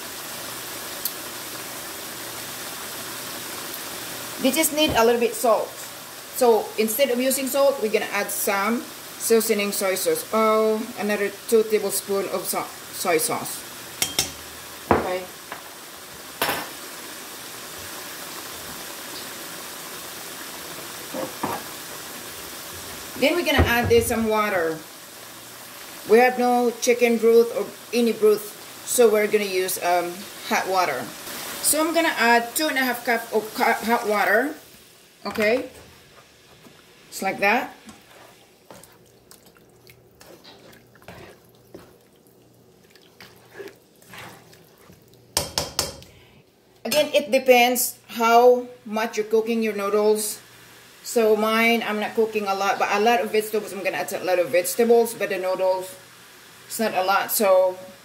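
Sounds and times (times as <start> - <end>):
food sizzling in a frying pan: 0.0 - 46.2, 46.8 - 58.0
broth sloshing and dripping: 37.9 - 45.4.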